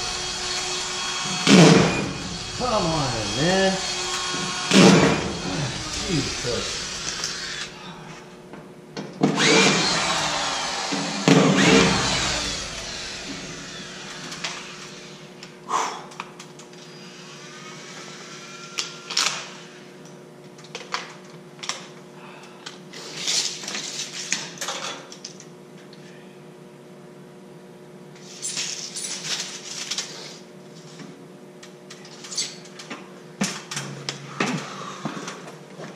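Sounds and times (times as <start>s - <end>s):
power tool whirring: 0.0s - 7.8s, 9.3s - 15.3s.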